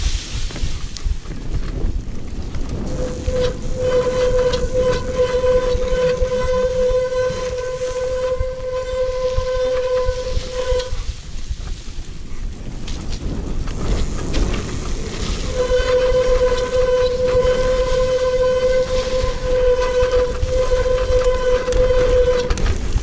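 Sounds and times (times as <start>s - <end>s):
wind on microphone: 0.0s - 23.0s
brakes squealing: 2.7s - 11.2s, 13.7s - 23.0s.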